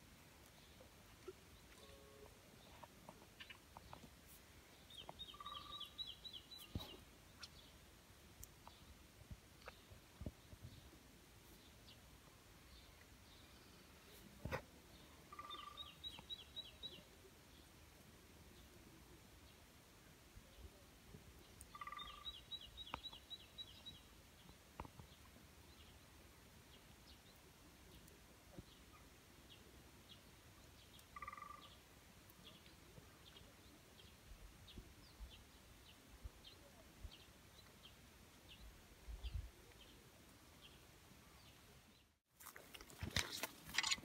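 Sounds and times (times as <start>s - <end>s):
faint bird calls: 5.0s - 7.6s, 15.3s - 17.0s, 21.6s - 23.2s, 31.0s - 31.8s.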